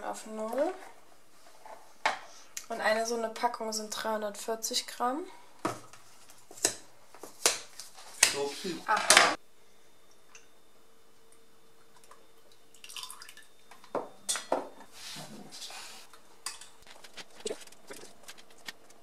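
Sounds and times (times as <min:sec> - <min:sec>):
milk pouring and glugging: 0:11.9 - 0:13.5.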